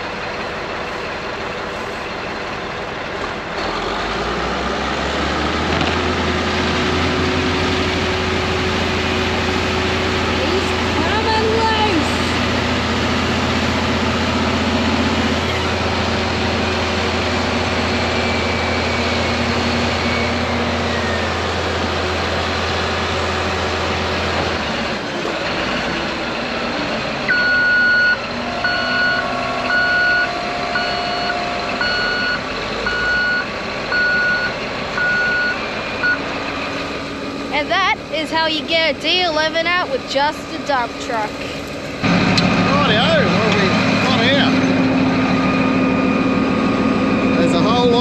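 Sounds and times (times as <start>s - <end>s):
bulldozer diesel engine: 0.0s - 48.0s
dump truck engine under load: 0.0s - 48.0s
reversing alarm beeping: 16.9s - 21.7s, 27.3s - 36.5s, 44.0s - 48.0s.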